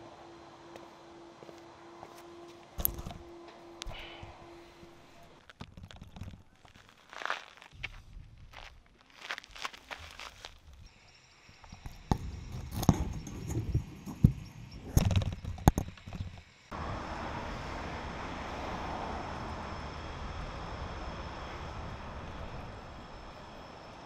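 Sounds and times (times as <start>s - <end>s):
street traffic noise: 0.0s - 5.6s, 16.7s - 24.0s
footsteps on gravel: 5.4s - 10.7s.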